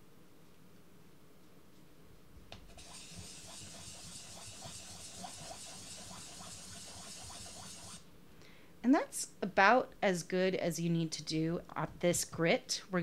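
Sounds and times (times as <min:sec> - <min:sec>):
scratchy sanding hiss: 0:02.7 - 0:08.0.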